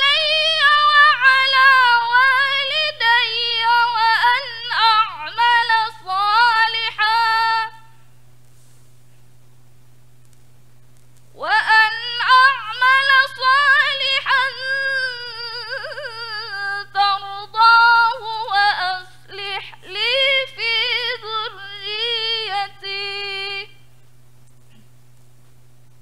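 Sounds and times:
woman reciting melodically: 0.0s - 8.0s, 11.4s - 23.9s
low electrical hum: 0.0s - 26.0s.

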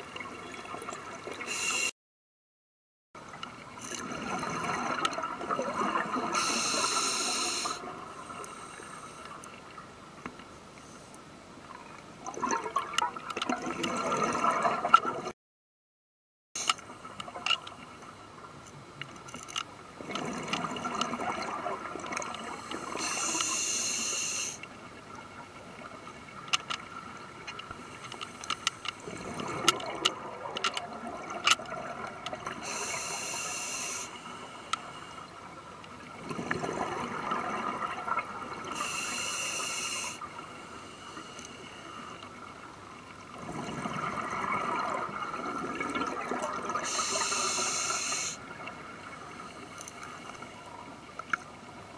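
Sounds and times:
regulator inhalation hiss: 1.5s - 1.9s, 6.4s - 7.8s, 22.6s - 24.6s, 32.6s - 35.1s, 38.7s - 42.1s, 46.8s - 48.4s
exhaled air bubbling: 3.6s - 9.8s, 11.7s - 15.3s, 20.0s - 23.7s, 29.0s - 33.6s, 34.7s - 40.6s, 42.3s - 51.0s.

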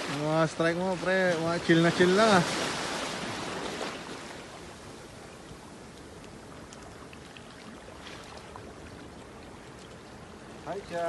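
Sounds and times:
waves washing around rocks: 0.0s - 9.4s
faint splashes: 0.0s - 11.0s.

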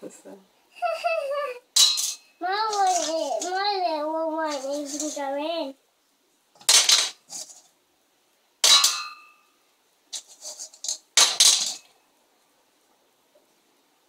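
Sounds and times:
stones clanking in steel saucepan: 1.8s - 3.6s, 4.5s - 5.2s, 6.6s - 7.7s, 8.6s - 9.5s, 10.1s - 12.0s.

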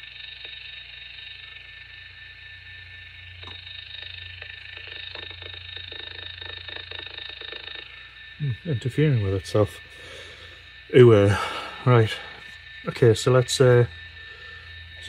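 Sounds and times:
low hum: 0.0s - 15.0s
radio static hiss with whine: 0.0s - 15.0s
rapid crackling clicks: 3.4s - 8.2s.

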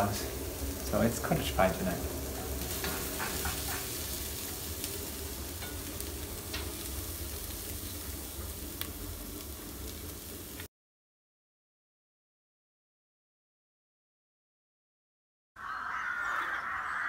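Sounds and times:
onions sizzling in a pot: 0.0s - 10.7s.

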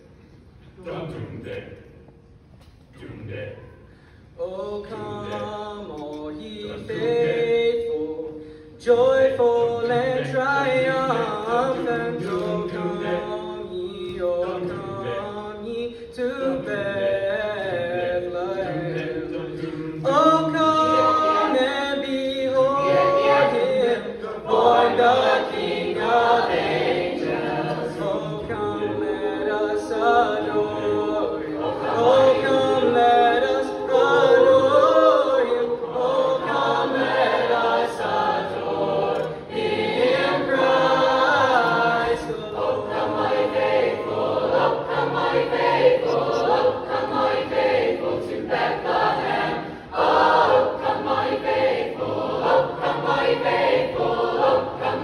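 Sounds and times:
choir singing sustained chords: 16.4s - 55.0s.

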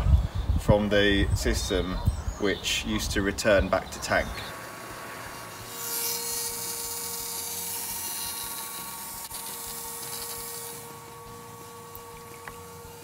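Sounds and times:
electric fuel pump whining: 4.0s - 13.0s.

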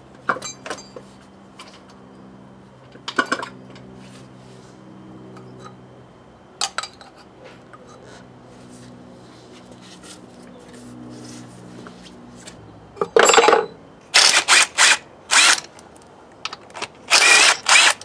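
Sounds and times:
metallic clinks and knocks: 13.0s - 13.8s.

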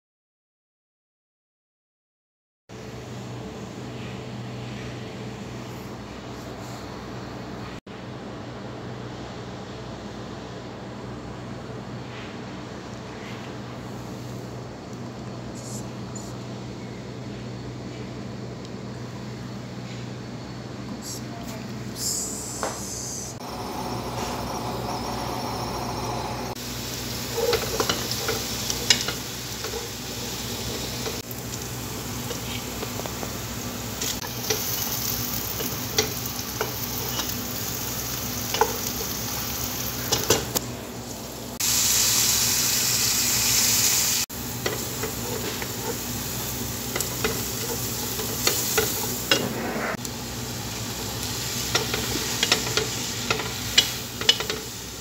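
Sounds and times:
onion sizzling in hot oil: 23.4s - 55.0s.

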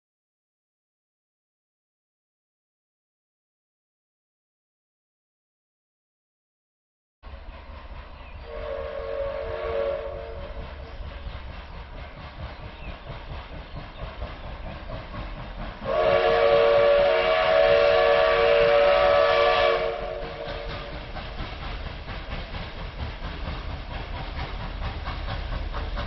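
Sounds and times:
train whistle chord: 8.4s - 10.7s, 15.8s - 21.0s.

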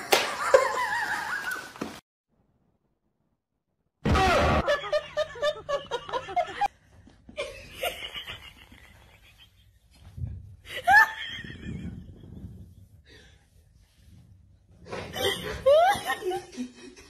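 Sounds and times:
people laughing: 4.6s - 6.7s, 7.4s - 9.7s, 15.1s - 17.0s.

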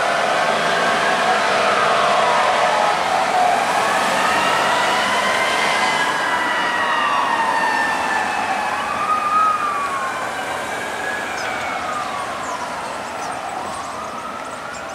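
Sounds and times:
emergency vehicle sirens wailing: 0.0s - 14.9s.

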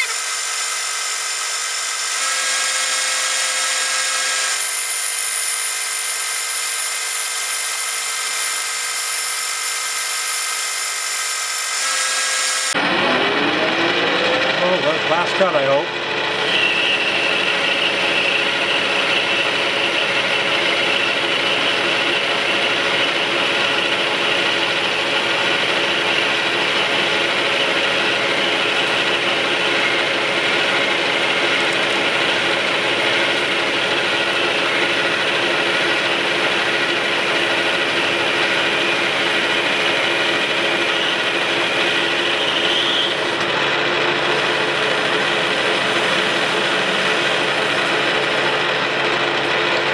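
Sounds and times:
high whine of cutting tool: 0.0s - 49.9s
metal lathe humming: 0.0s - 49.9s.

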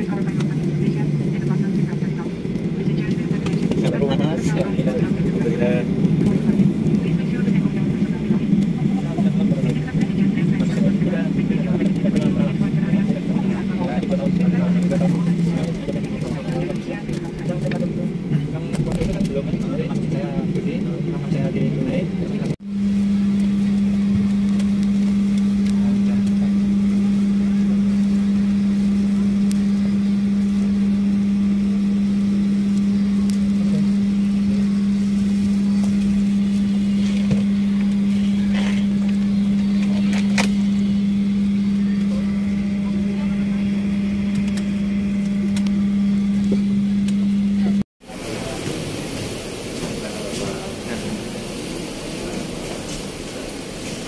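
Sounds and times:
loud steady low hum: 0.0s - 54.0s.

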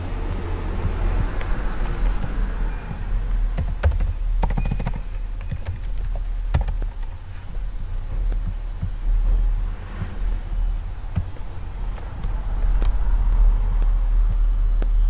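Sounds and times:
steady low hum: 0.0s - 15.0s
computer keyboard typing: 2.1s - 7.2s.

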